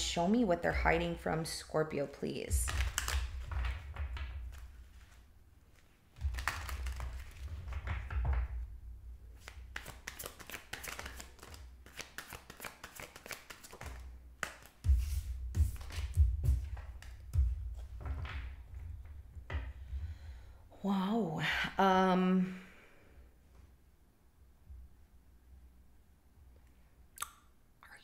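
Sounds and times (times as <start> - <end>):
cards being shuffled: 2.5 - 8.7, 9.3 - 18.9
cards laid on wooden table: 2.6 - 8.6, 9.3 - 17.2.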